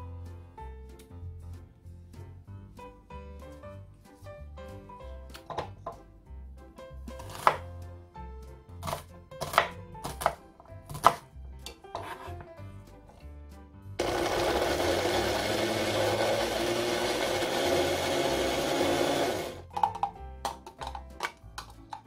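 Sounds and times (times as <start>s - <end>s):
knife cutting on wooden board: 7.2s - 7.7s, 8.8s - 12.5s
electric blender grinding: 14.0s - 19.7s.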